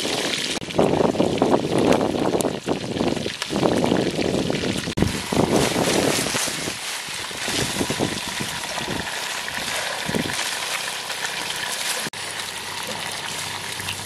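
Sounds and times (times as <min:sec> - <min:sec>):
wind buffeting microphone: 0:00.0 - 0:10.4
hand rustling leafy fruit: 0:05.0 - 0:08.3.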